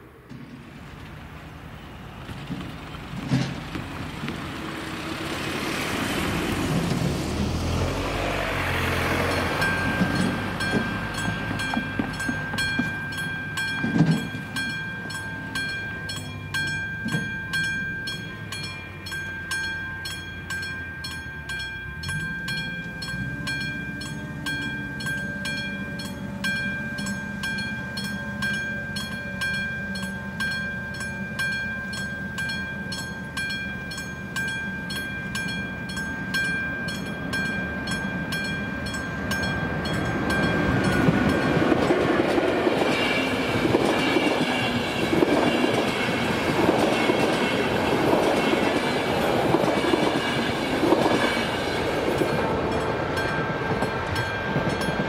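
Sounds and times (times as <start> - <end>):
vehicle passing: 0.0 - 12.3
level crossing bell ringing: 9.2 - 41.7.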